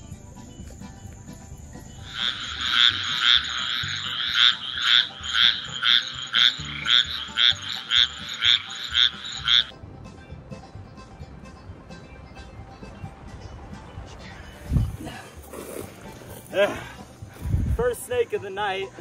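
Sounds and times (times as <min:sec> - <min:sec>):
frog trilling: 0:02.0 - 0:09.7.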